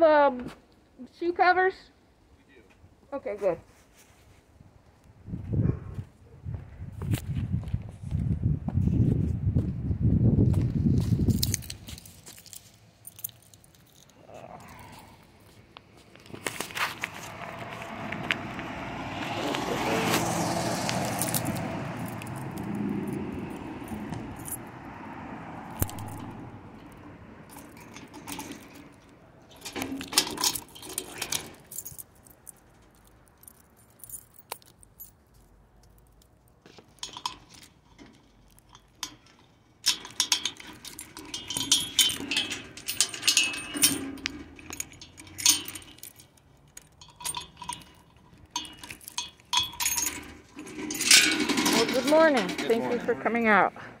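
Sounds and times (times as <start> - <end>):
light metallic jangling: 11.0 - 15.0, 20.3 - 25.0, 25.6 - 53.1.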